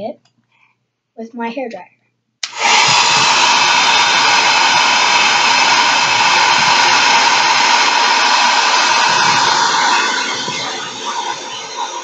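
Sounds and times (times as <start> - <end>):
hair dryer running: 2.4 - 12.0.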